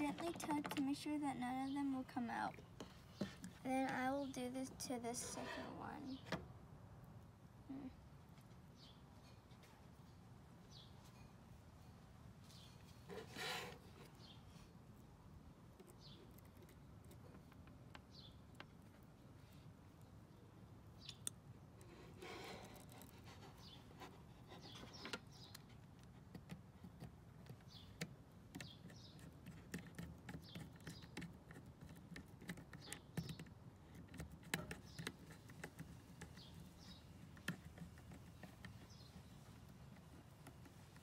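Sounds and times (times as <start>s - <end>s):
small clicks and scratches: 0.0s - 6.4s, 15.7s - 41.0s.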